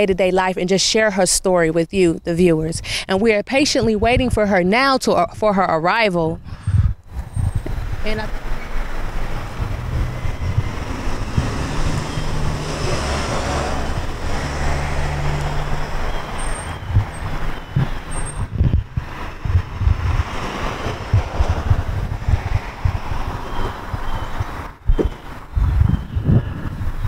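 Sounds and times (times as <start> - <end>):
wind buffeting microphone: 0.0 - 27.0
car engine running: 8.8 - 24.9.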